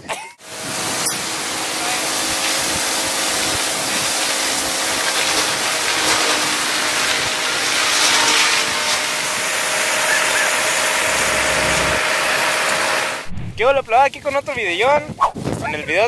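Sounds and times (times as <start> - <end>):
hammer mill grinding: 1.1 - 13.3
tractor engine hum: 9.2 - 13.3.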